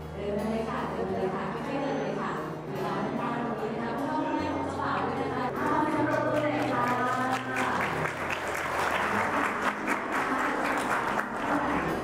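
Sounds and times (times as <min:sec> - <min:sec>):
crowd clapping: 0:05.6 - 0:12.0.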